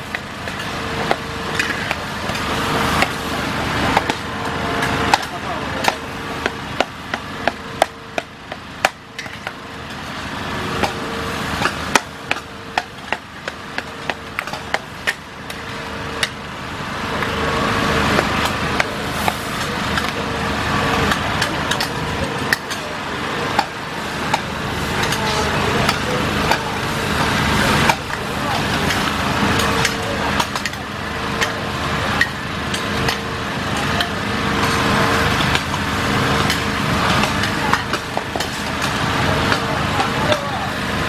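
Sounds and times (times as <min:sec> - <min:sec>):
hiss of frying: 0:18.9 - 0:19.9.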